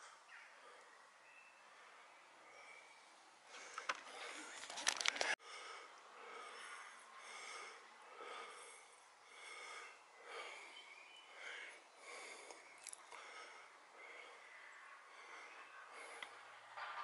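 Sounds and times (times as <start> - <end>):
person breathing heavily: 0.0 - 16.8
rustling noise: 3.9 - 5.4.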